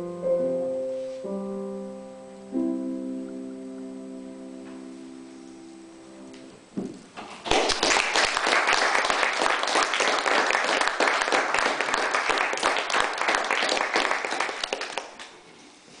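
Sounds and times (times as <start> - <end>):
audience clapping: 7.4 - 15.4.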